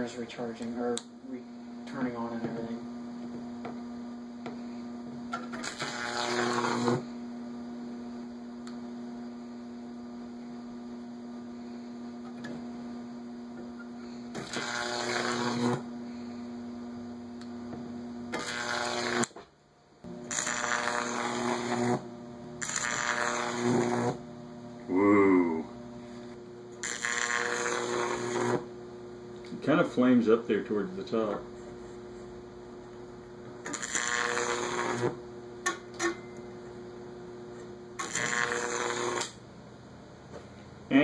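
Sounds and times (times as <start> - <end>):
high-voltage arc buzzing: 5.3 - 9.6, 12.3 - 19.4, 20.0 - 31.2, 33.5 - 37.2, 37.8 - 39.6
electric arc crackling: 5.4 - 7.1, 14.3 - 15.9, 18.3 - 19.4, 20.1 - 24.9, 26.8 - 28.7, 33.6 - 35.2, 38.0 - 39.4.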